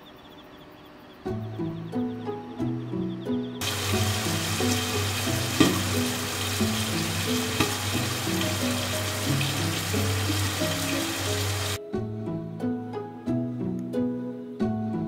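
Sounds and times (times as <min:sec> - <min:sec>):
soft melodic background music: 0:01.1 - 0:15.0
fish sizzling in frying pan: 0:03.6 - 0:11.8.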